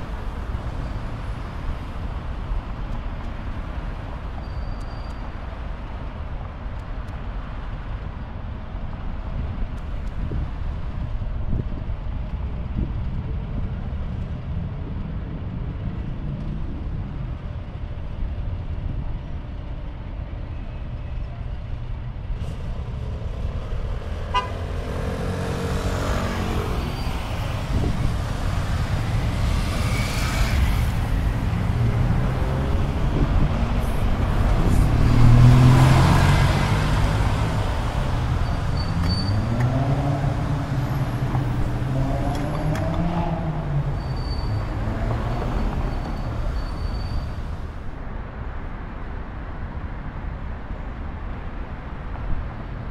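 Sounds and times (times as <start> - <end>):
low rumble of cars passing: 0.0 - 52.9
vehicle engines pulling away: 22.2 - 47.7.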